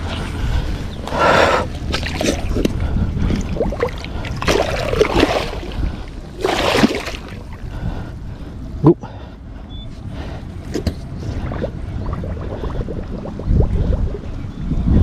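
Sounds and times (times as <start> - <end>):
heavy breathing: 0.0 - 1.7, 7.4 - 14.1
wind rumbling on microphone: 0.0 - 15.0
water splashing: 1.8 - 7.6.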